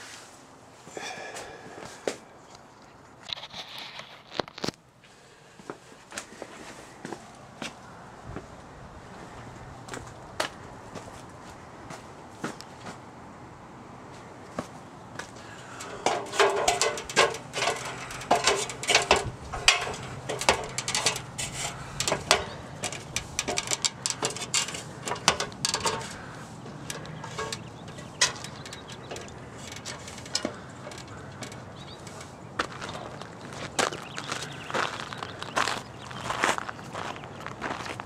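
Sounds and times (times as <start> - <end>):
footsteps crunching on gravel: 14.5 - 38.0
clanks on aluminium ladder rungs: 15.4 - 34.5.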